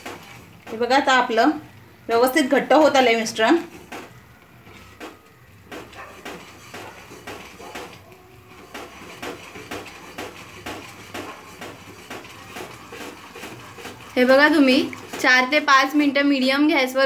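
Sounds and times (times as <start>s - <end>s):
spatula scraping a pan: 2.5s - 5.0s, 5.8s - 15.8s.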